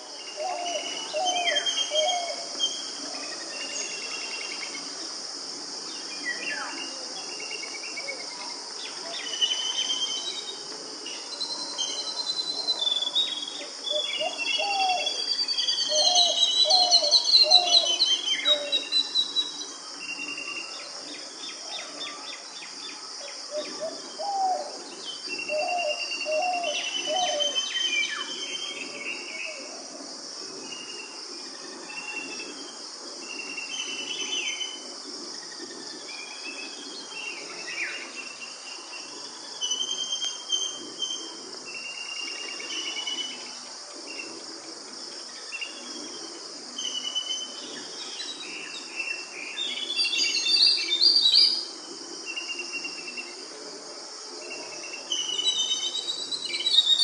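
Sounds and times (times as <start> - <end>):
crickets and insects chirping: 0.0 - 57.0
birds calling and whistling: 0.2 - 4.8, 8.8 - 29.8, 36.1 - 44.3, 45.4 - 51.7, 54.4 - 57.0.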